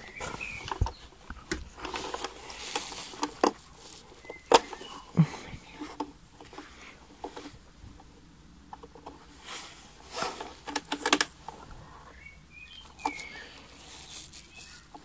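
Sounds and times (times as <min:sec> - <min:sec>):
plastic rustling: 0:00.0 - 0:07.6, 0:12.8 - 0:15.0
plastic clicks and knocks: 0:00.4 - 0:03.6, 0:10.4 - 0:11.6.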